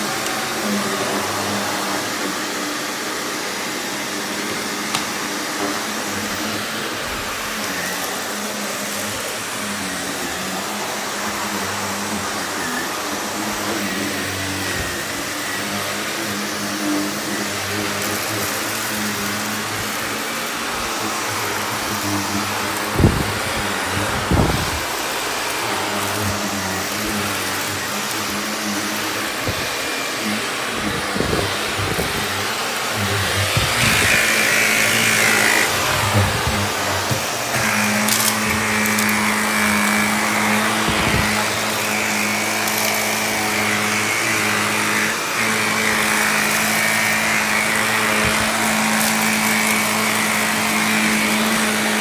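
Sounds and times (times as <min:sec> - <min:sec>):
vacuum cleaner running: 0:00.0 - 0:52.0.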